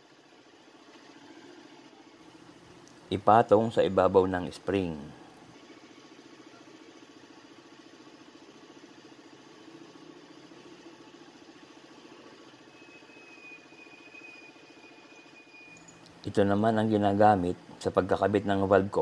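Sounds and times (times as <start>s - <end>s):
small engine idling: 0.0s - 19.0s
thin high whine: 9.1s - 19.0s.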